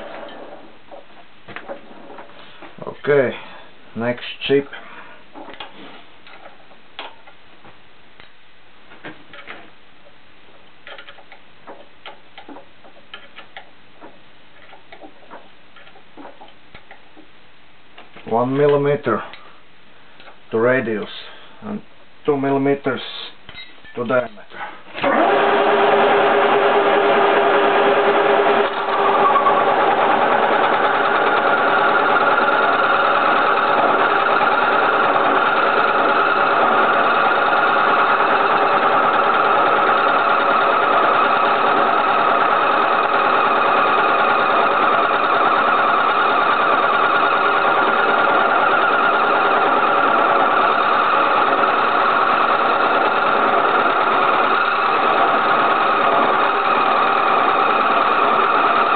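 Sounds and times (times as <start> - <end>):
milling machine droning: 25.0 - 58.9.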